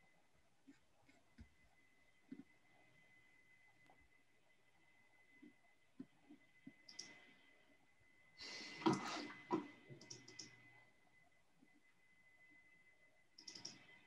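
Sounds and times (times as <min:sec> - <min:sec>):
faint high-pitched tone: 0:00.0 - 0:14.0
faint scattered clicks: 0:05.4 - 0:07.3, 0:10.0 - 0:10.6, 0:13.4 - 0:14.0.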